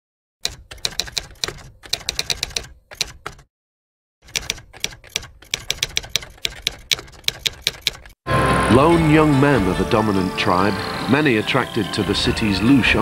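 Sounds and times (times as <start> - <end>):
typewriter keys clicking: 0.4 - 3.5, 4.2 - 8.2.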